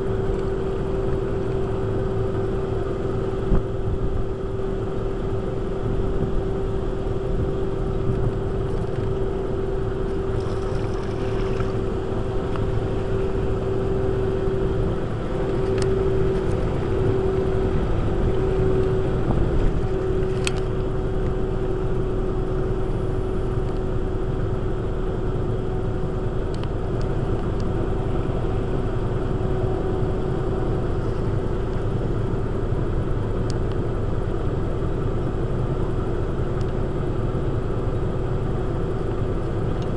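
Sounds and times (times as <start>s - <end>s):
electric boat drive humming: 0.0s - 39.9s
water rushing: 7.8s - 21.2s.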